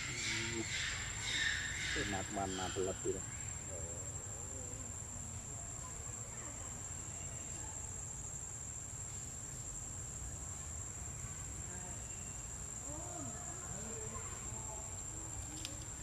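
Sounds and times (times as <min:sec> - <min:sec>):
high-pitched insect drone: 0:00.0 - 0:05.4.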